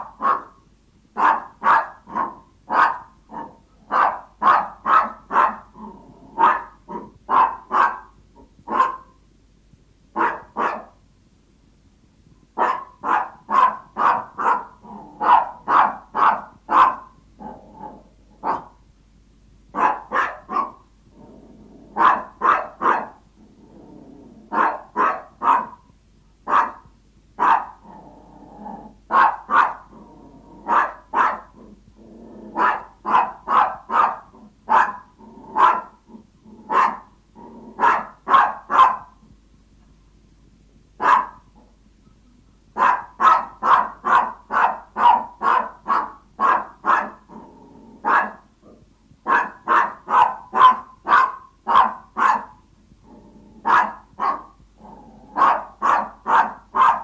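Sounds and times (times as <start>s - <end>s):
small dog yapping: 1.2s - 5.7s, 6.4s - 8.0s, 10.2s - 10.9s, 12.6s - 17.1s, 18.4s - 18.7s, 19.8s - 20.8s, 22.0s - 23.2s, 24.5s - 25.8s, 26.5s - 27.8s, 29.1s - 29.8s, 30.7s - 31.5s, 32.6s - 35.0s, 35.6s - 35.9s, 37.8s - 39.1s, 41.0s - 41.4s, 42.8s - 47.2s, 49.3s - 52.6s, 53.7s - 54.5s, 55.4s - 57.0s.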